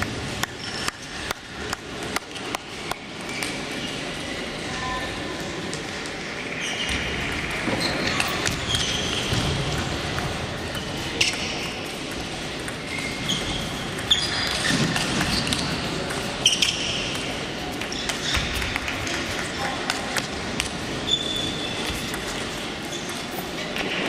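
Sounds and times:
table tennis balls clicking: 7.2s - 24.0s.

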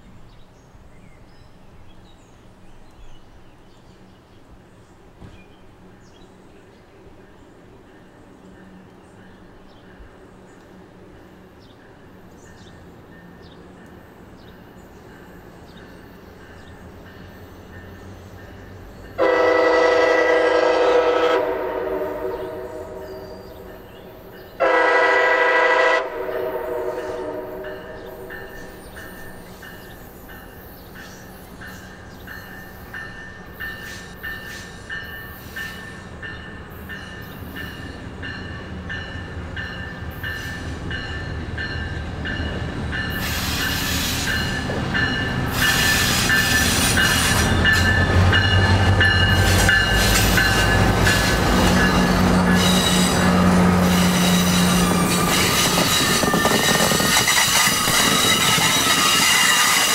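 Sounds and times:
diesel locomotive engine rumble: 0.0s - 59.9s
train horn blasts: 19.1s - 23.8s, 24.6s - 28.3s
train wheels clicking over rails: 28.0s - 59.9s.

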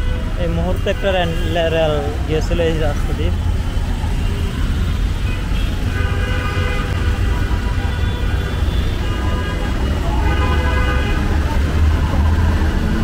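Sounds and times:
long vehicle horn: 0.0s - 0.4s, 4.2s - 11.5s
traffic rumble: 0.0s - 13.0s.

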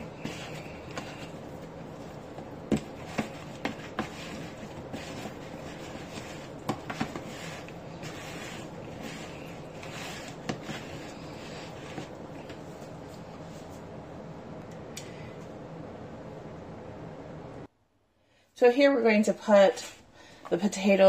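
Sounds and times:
potato wedges shuffling in bowl: 0.0s - 12.1s
room hum: 0.0s - 21.0s.

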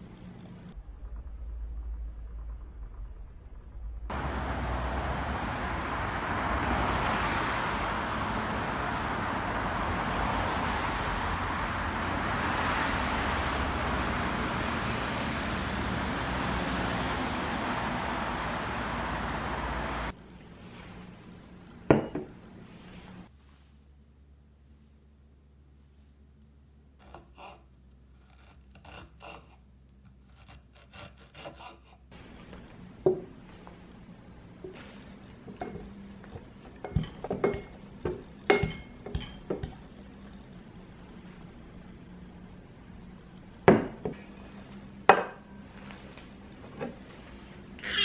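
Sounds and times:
city road traffic: 4.1s - 23.3s, 23.9s - 48.0s
glass clinking on counter: 21.9s - 22.3s, 35.6s - 39.9s.

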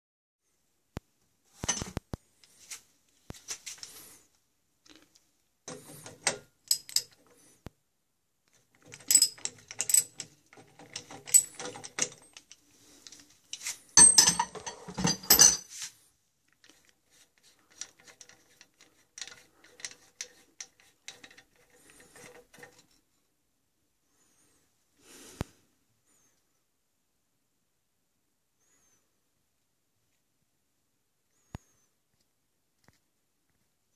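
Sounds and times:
metal clicks and scrapes: 5.7s - 7.4s, 8.5s - 15.4s, 16.5s - 23.1s.

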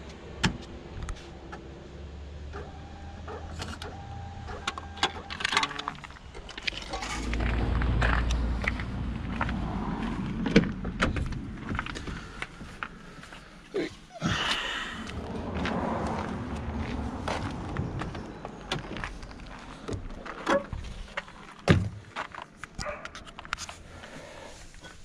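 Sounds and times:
low rumble: 6.0s - 13.6s, 14.3s - 21.2s.

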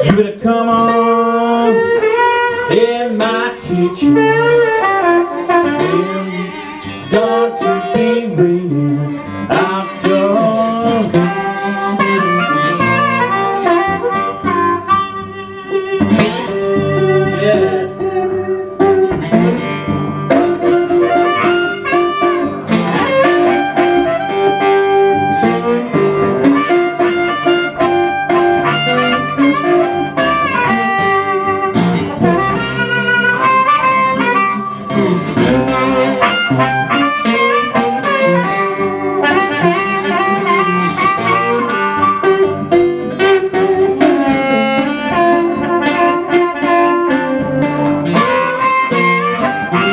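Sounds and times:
blues harmonica solo: 0.0s - 49.9s
guitar accompaniment: 0.0s - 49.9s.

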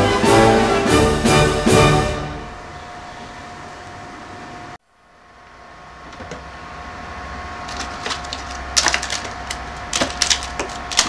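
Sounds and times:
faint steady hum: 2.2s - 11.0s
sharp clicks and crackles: 7.7s - 11.0s.

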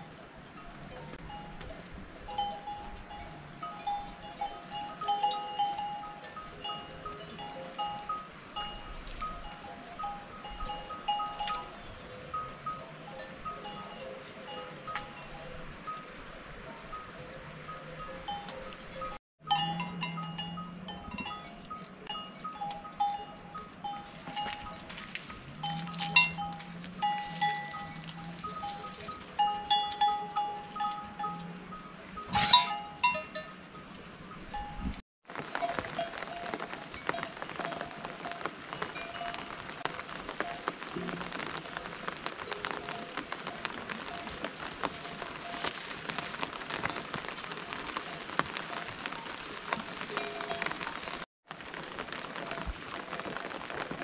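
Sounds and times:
metal livestock bells clinking: 0.0s - 16.1s, 16.7s - 35.0s, 35.6s - 41.1s, 50.1s - 51.2s
rain drops hitting close: 0.0s - 54.0s
steady rain hiss: 20.3s - 30.8s, 35.3s - 54.0s.

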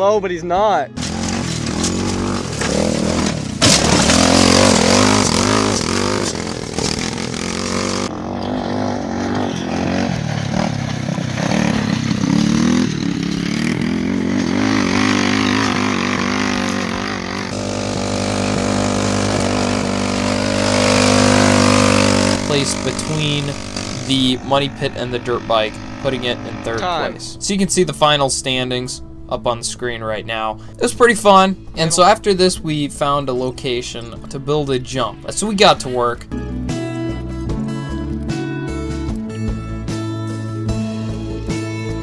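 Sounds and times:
go-kart engine revving: 1.0s - 27.5s.

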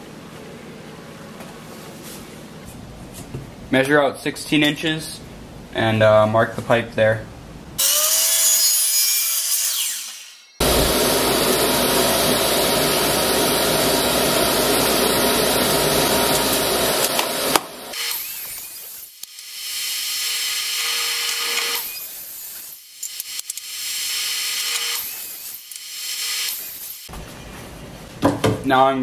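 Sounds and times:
miter saw cutting: 7.8s - 27.1s.

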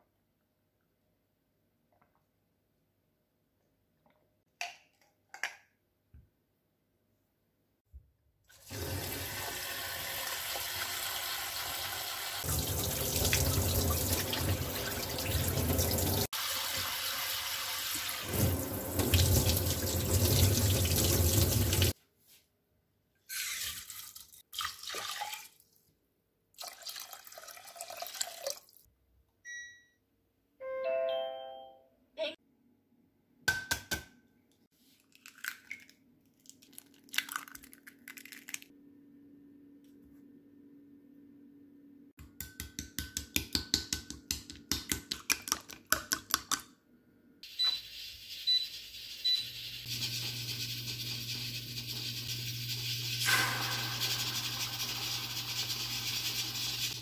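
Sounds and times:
tap water running into bowl: 8.7s - 21.9s.

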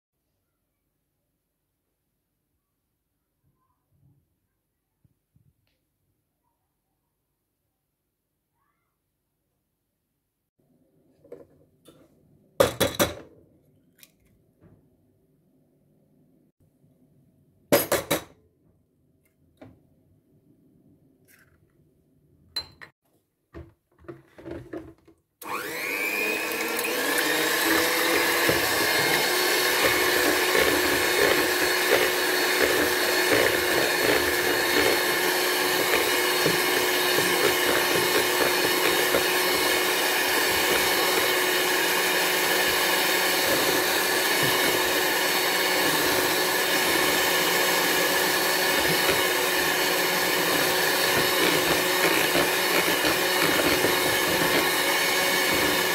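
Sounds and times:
electric hand mixer whirring: 25.4s - 55.9s.

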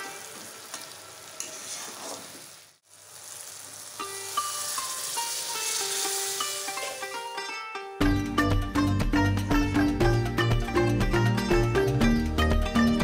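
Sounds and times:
potatoes sizzling in a pan: 0.0s - 7.5s
water poured into hot pan: 1.5s - 7.2s.

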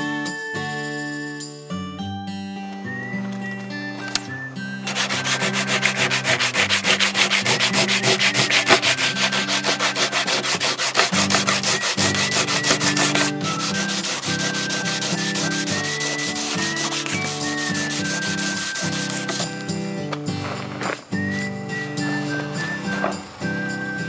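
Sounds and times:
sandpaper rubbing on wood: 4.9s - 19.5s.

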